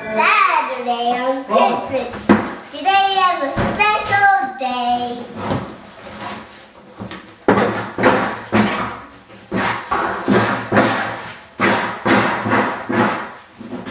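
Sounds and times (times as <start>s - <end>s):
dull thumps: 1.9s - 4.6s, 5.2s - 13.9s.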